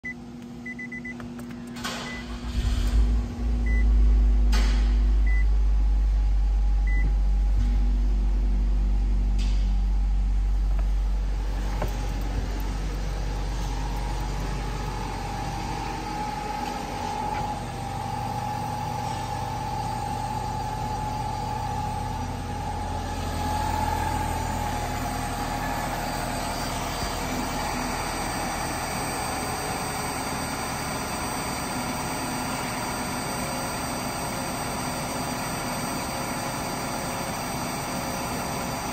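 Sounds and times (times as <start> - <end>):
door warning chime beeping: 0.0 - 1.2, 6.8 - 7.2
car engine starting and idling: 0.0 - 38.9.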